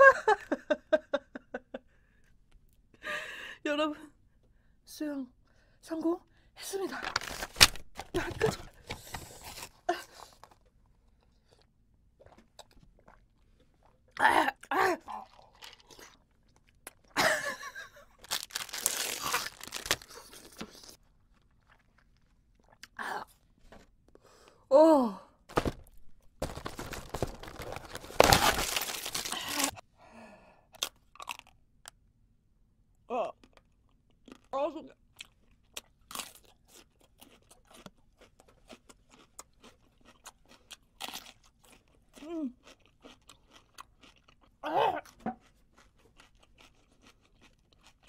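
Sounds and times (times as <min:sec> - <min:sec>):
plastic wrapper tearing and crinkling: 0:07.0 - 0:08.3, 0:18.2 - 0:21.0, 0:25.5 - 0:29.8
mouth chewing with wet clicks: 0:10.4 - 0:14.2, 0:15.2 - 0:17.2, 0:21.0 - 0:23.0, 0:35.1 - 0:44.6.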